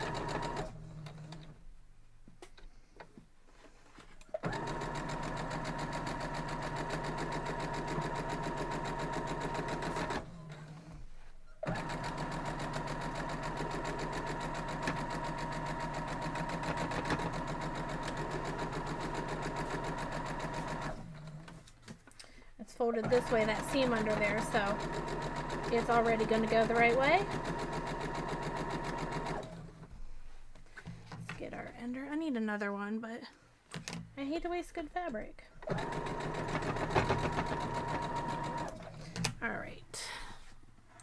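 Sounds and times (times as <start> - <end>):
sewing machine stitching: 0.0 - 1.6, 4.3 - 10.9, 11.6 - 21.7, 22.8 - 29.8, 35.6 - 39.6.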